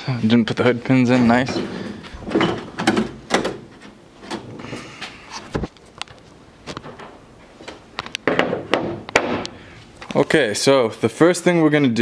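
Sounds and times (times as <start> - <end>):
sharp knock: 8.3 - 9.5.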